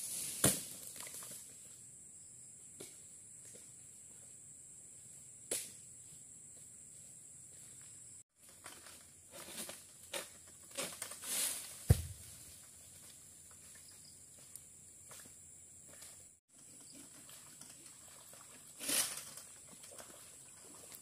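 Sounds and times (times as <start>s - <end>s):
palm fronds rustling: 8.4s - 13.7s
heavy thud on ground: 11.8s - 12.3s.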